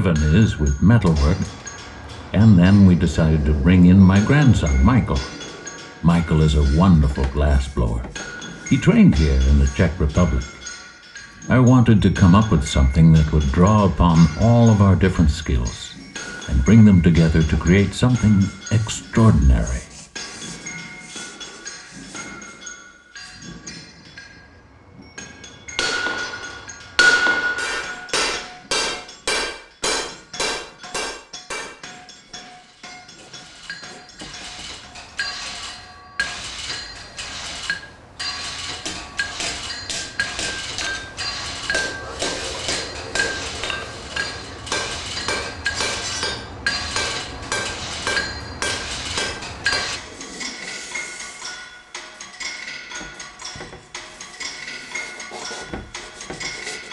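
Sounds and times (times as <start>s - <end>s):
hammer striking metal anvil: 25.1s - 56.9s.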